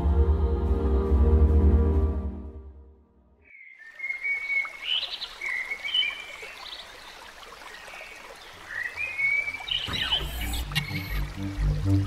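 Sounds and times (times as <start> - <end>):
stream water: 3.5 - 12.0.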